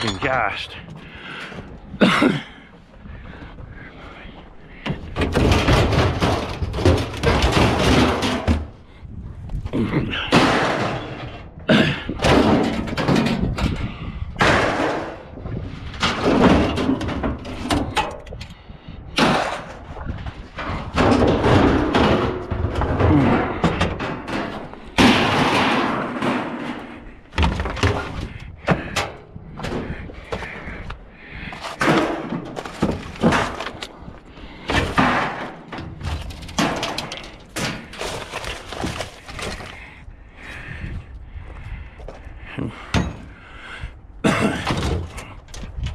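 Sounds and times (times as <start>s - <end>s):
sheet metal banging and clattering: 4.7s - 9.0s, 10.2s - 15.4s, 16.0s - 18.4s, 19.1s - 39.7s.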